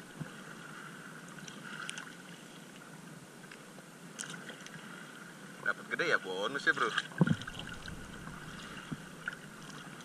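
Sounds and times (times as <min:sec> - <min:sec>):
small waves lapping: 0:00.0 - 0:10.0
little splashes: 0:06.7 - 0:10.0.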